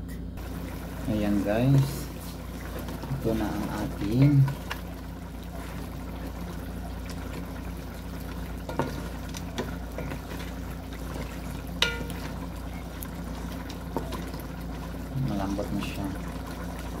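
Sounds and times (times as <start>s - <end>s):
stew bubbling and squelching: 0.4s - 17.0s
spoon knocking against metal pot: 11.8s - 12.2s.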